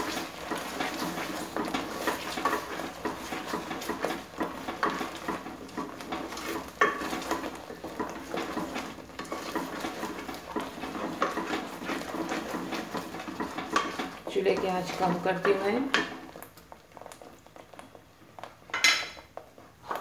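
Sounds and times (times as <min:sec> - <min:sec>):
spatula scraping paste in pot: 0:00.0 - 0:16.3
faint sizzle: 0:00.0 - 0:20.0
spatula knocking against pot: 0:01.6 - 0:12.6.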